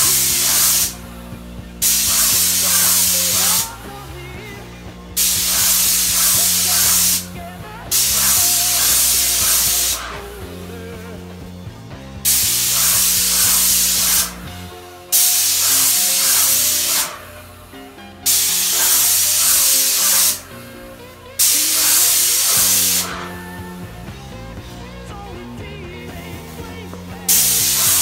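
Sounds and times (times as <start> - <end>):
paint sprayer hissing: 0.0 - 4.6, 5.2 - 11.6, 12.2 - 24.0, 26.2 - 28.0
background music: 0.0 - 28.0.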